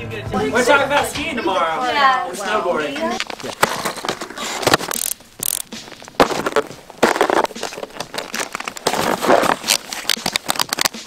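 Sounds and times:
binding clicks: 4.3s - 11.0s
crunching in packed snow: 5.2s - 10.3s.

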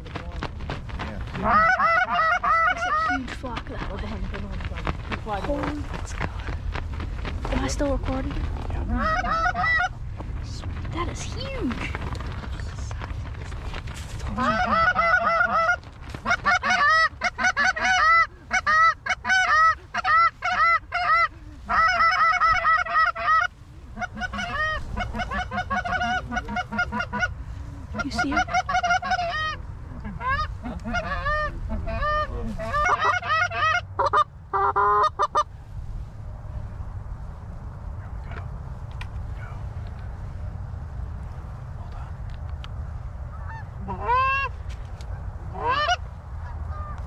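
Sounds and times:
low rumble of wind: 0.0s - 47.0s
goose honking and clucking: 1.3s - 3.6s, 8.8s - 10.0s, 14.2s - 35.5s, 43.3s - 47.0s.

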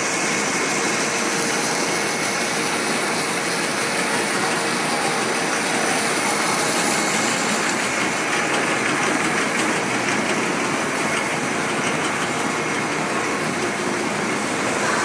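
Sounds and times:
machine motors whirring: 0.8s - 15.0s.

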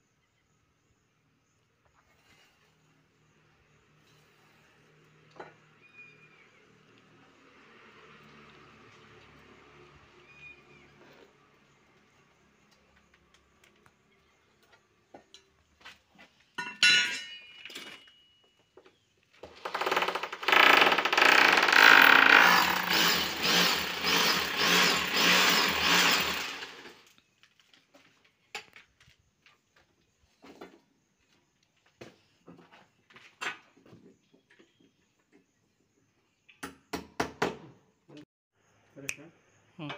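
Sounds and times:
electric drill boring into wall: 19.5s - 27.1s.

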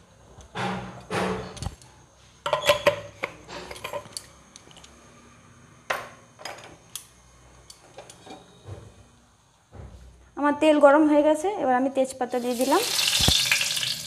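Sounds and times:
utensils and containers clinking: 2.5s - 4.3s.

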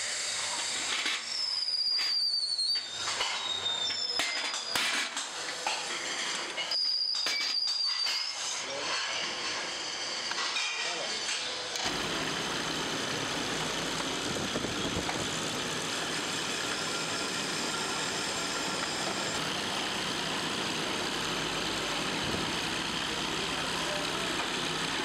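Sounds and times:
coil winding machine humming: 11.8s - 25.0s.

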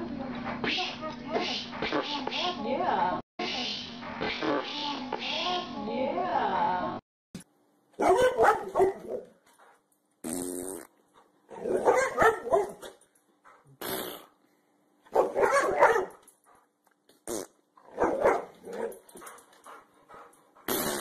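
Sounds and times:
dog barking: 8.0s - 9.3s, 11.6s - 13.0s, 15.1s - 16.2s, 17.9s - 19.4s.

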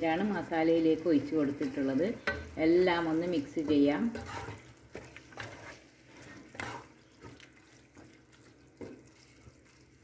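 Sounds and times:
spatula scraping metal pot: 3.6s - 7.0s.

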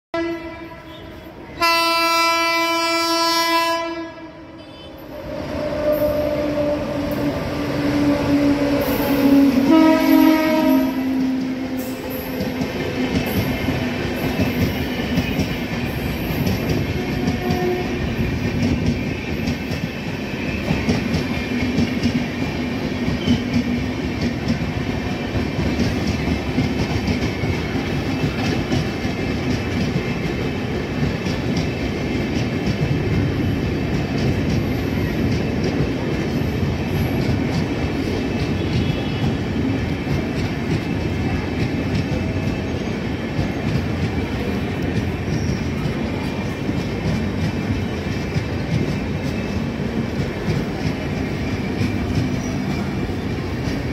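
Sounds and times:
train horn: 0.2s - 7.3s, 8.0s - 12.0s, 16.7s - 18.2s, 38.5s - 39.6s
train wheels rumbling: 0.8s - 53.9s.

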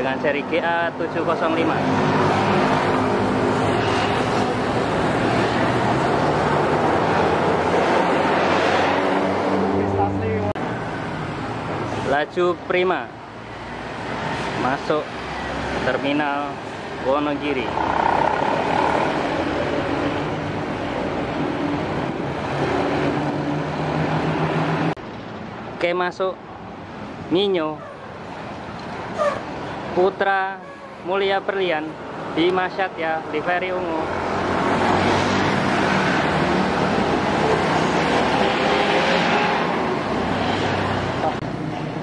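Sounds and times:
road traffic passing: 0.0s - 42.0s
motorbike driving past: 17.6s - 20.5s.

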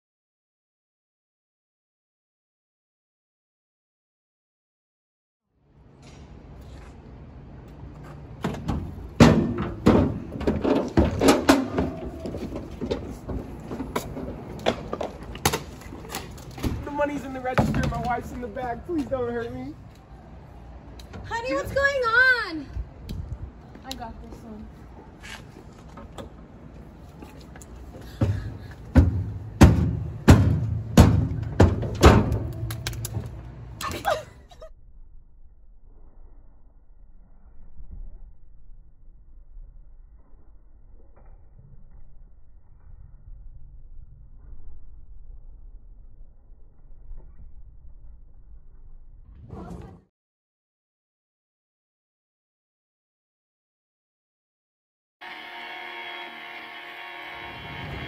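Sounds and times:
footsteps on metal stairs: 25.2s - 33.4s
door banging open: 29.0s - 33.3s.

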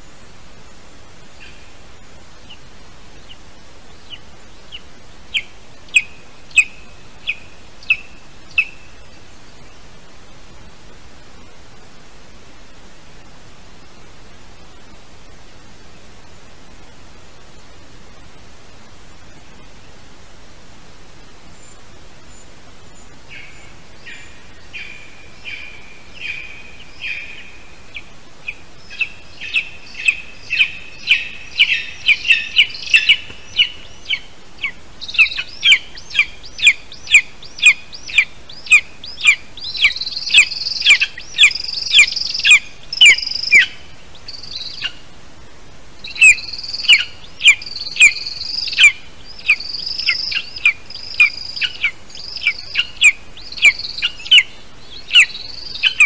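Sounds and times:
young eagle chirping calls: 4.1s - 8.8s, 23.3s - 45.0s, 46.0s - 56.0s.

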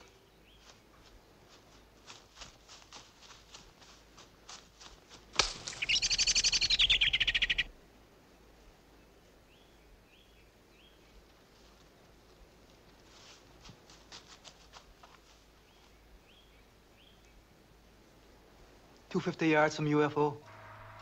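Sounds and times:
footsteps on dry twigs and leaves: 0.0s - 6.2s, 11.3s - 16.0s
twig cracking: 5.3s - 6.2s
bird rattling call: 5.4s - 7.7s
soft bird chirps: 5.4s - 7.7s.

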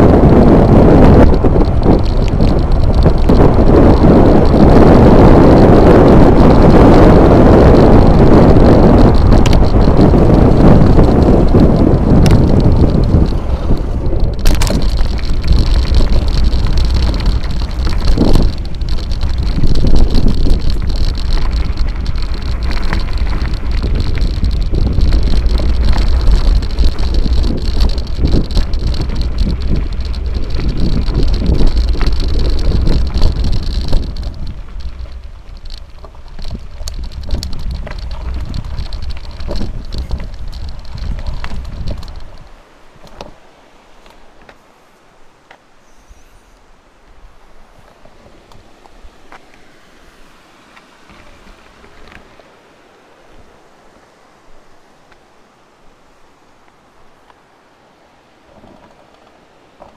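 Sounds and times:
bike clicks and knocks: 0.0s - 43.4s
wind buffeting microphone: 0.0s - 44.6s
tyres crunching over gravel: 0.0s - 44.7s.

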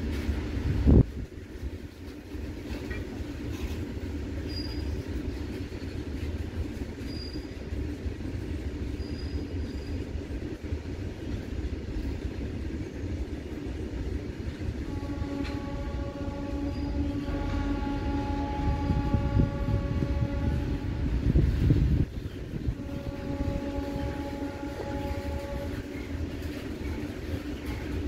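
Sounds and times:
freight train rolling on rails: 0.0s - 28.0s
train horn blast: 14.7s - 21.8s, 22.6s - 26.5s.

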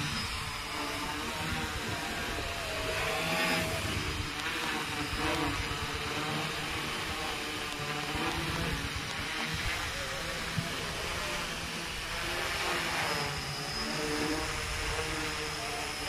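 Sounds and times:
quadcopter motors whirring: 0.0s - 16.0s.

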